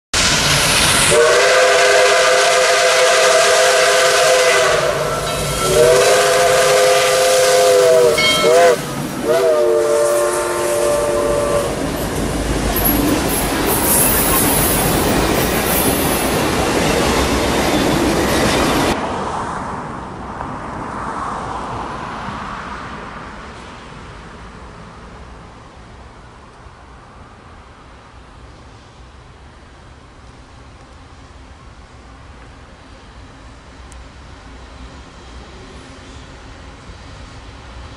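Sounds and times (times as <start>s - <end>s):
train rumbling and clattering past: 0.2s - 37.9s
locomotive air horn: 1.1s - 11.8s
quiet outdoor background: 22.0s - 37.9s.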